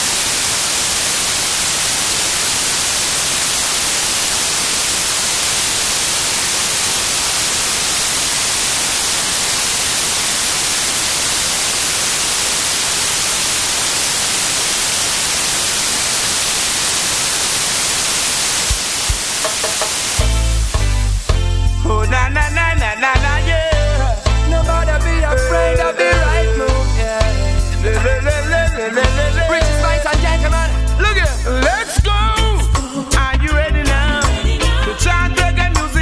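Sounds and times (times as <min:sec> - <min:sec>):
white-noise static hiss: 0:00.0 - 0:21.6.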